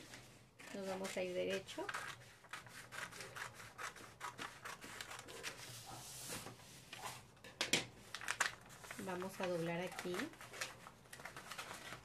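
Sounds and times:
scissors snipping paper: 0:00.6 - 0:05.6, 0:08.2 - 0:12.0
paper strip rustling: 0:08.0 - 0:12.0.

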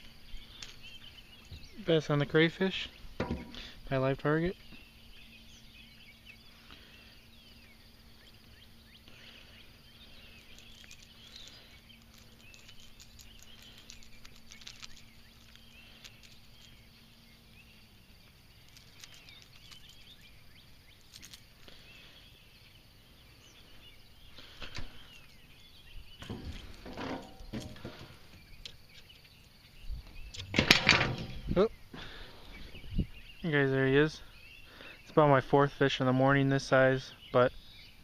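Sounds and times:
faint bird calls: 0:00.0 - 0:30.5, 0:31.1 - 0:38.0
thumps and rustles: 0:03.2 - 0:03.6, 0:26.2 - 0:28.4, 0:30.4 - 0:31.6.

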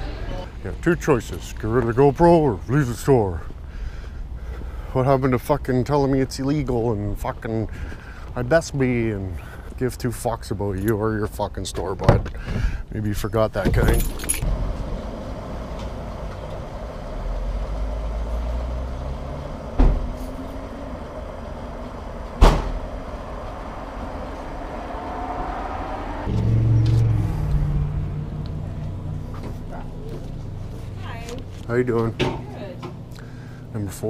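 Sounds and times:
traffic running steadily: 0:00.0 - 0:34.0
low engine rumble: 0:12.4 - 0:34.0.

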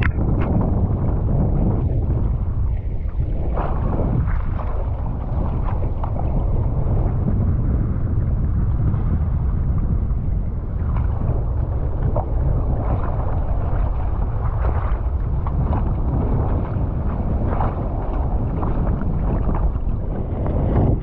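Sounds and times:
wind buffeting microphone: 0:00.0 - 0:21.0
water splashing against board: 0:10.9 - 0:21.0.

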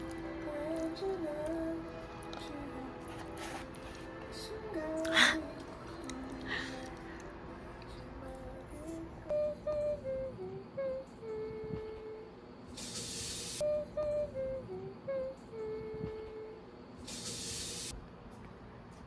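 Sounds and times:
hiss-like swell: 0:10.0 - 0:13.8, 0:17.0 - 0:18.0.

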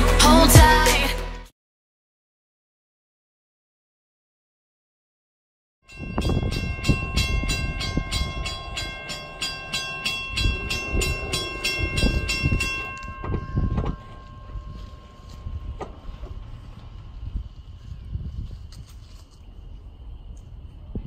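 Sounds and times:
railroad crossing bell ringing: 0:05.8 - 0:16.2
passing train rumble: 0:05.9 - 0:18.4.

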